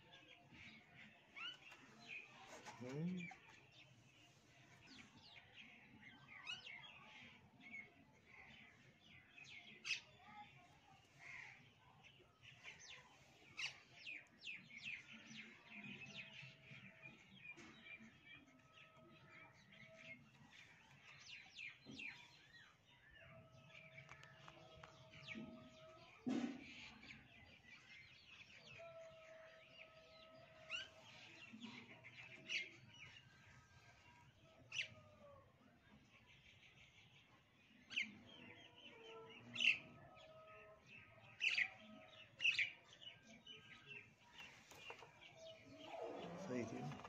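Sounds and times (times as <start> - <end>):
birds chirping: 41.4 - 47.0.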